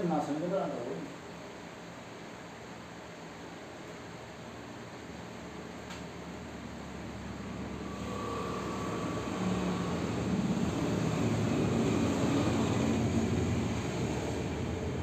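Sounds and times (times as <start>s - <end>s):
engine-like rumble with whine: 4.9s - 15.0s.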